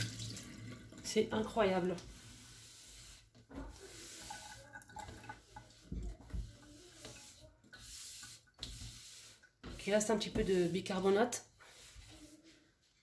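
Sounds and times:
sponge wiping water in metal sink: 0:01.0 - 0:13.0.

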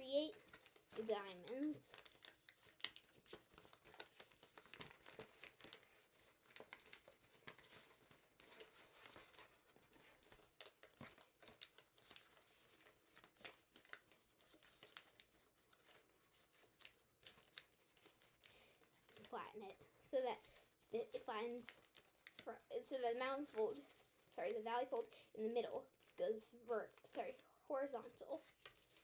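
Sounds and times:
paper crinkling while folded: 0:00.0 - 0:29.0.

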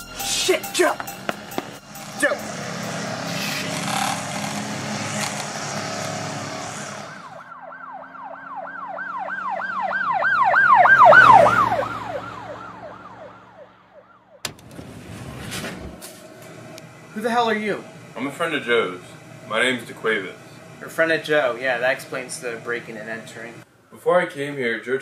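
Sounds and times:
emergency siren yelping: 0:06.6 - 0:14.5.

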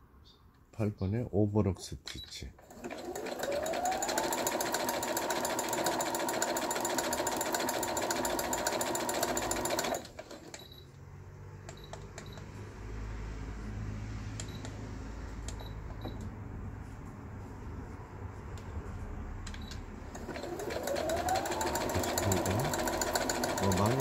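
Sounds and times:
sewing machine stitching: 0:02.6 - 0:10.7, 0:20.1 - 0:24.0.

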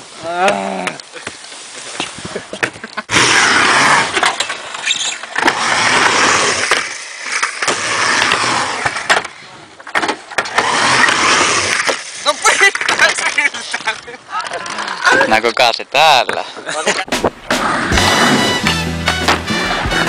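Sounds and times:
skateboard wheels rolling on ramp: 0:00.9 - 0:14.9, 0:17.1 - 0:20.0.

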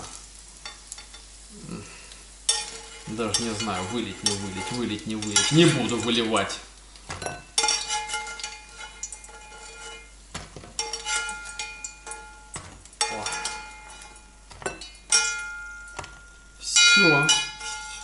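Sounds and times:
metal spoon scraping frying pan: 0:02.5 - 0:18.0.

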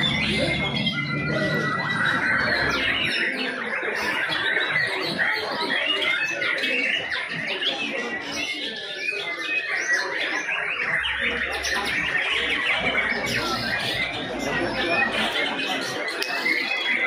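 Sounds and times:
many songbirds singing: 0:00.0 - 0:17.0.

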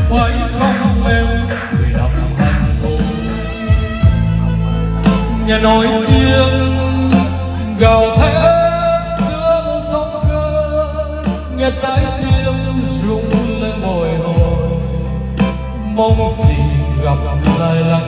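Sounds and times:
backing track with bass and guitar: 0:00.0 - 0:18.0
man singing karaoke: 0:00.0 - 0:18.0.

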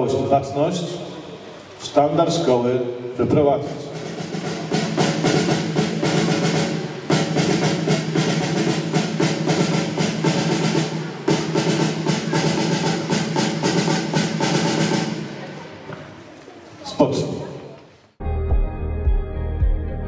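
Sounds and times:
snare drum march beat: 0:03.6 - 0:15.4.

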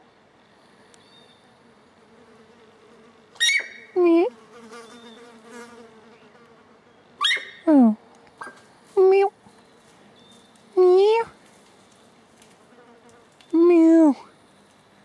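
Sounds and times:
faint insect buzz: 0:00.5 - 0:07.0, 0:10.3 - 0:15.0.

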